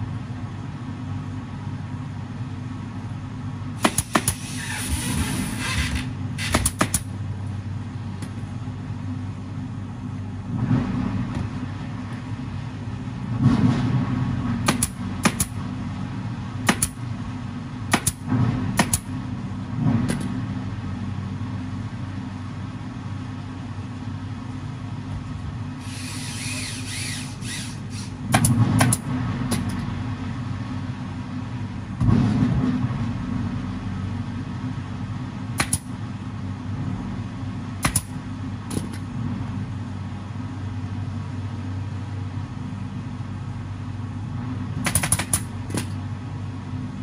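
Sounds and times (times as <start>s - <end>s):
air compressor humming: 3.7s - 7.2s, 25.7s - 29.8s
staple gun firing: 3.8s - 4.4s, 6.4s - 7.1s, 14.7s - 15.5s, 28.3s - 29.8s, 35.6s - 35.9s, 37.8s - 38.1s, 44.8s - 45.9s
air hissing: 3.8s - 7.0s, 25.8s - 28.2s.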